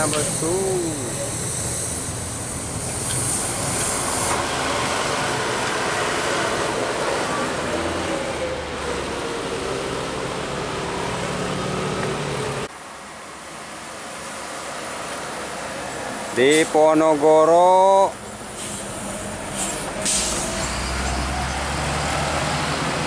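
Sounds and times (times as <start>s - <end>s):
high hiss: 0.0s - 4.5s
heavy road traffic passing: 0.0s - 23.0s.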